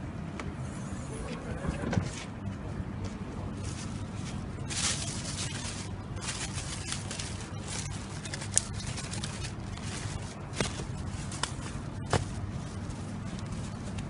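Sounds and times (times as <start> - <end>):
steady low hum: 0.0 - 14.0
plastic bags rustling: 3.5 - 14.0.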